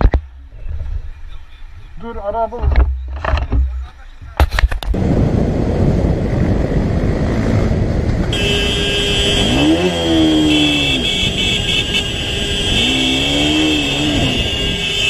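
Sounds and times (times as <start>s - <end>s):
wind noise: 0.0s - 8.6s
motorcycle engine revving: 5.0s - 15.0s.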